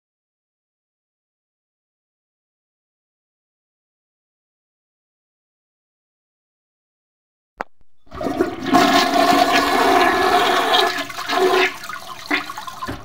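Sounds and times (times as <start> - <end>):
toilet flushing water rushing: 8.0 - 13.0
toilet flush lever click: 12.3 - 13.0.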